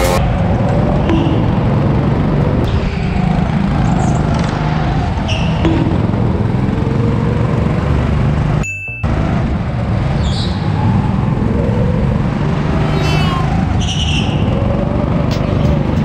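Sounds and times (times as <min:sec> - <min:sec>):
go-kart engine rumbling: 0:00.0 - 0:16.0
tyre squeals: 0:05.2 - 0:05.7, 0:12.9 - 0:14.6.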